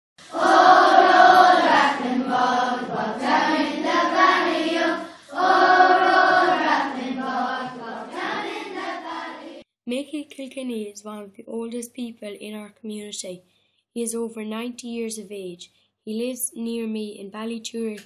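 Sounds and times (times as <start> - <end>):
choir singing: 0.2 - 9.6.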